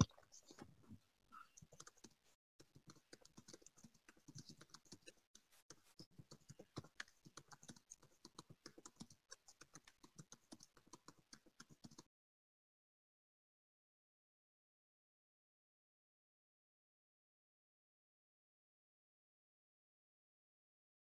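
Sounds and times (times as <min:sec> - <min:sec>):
typing on computer keyboard: 0:01.6 - 0:12.1.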